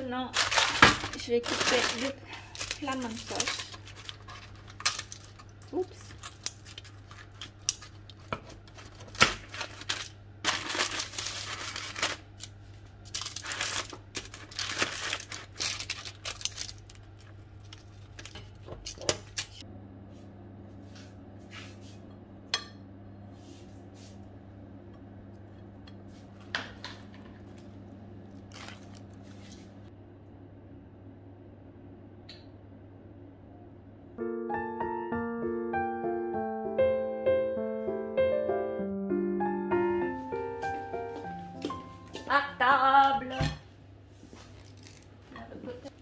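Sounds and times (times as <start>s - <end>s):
steady low hum: 0.0s - 34.4s
paper rustling: 0.4s - 19.6s, 28.5s - 29.8s
scissors snipping crisp crust: 2.6s - 12.2s.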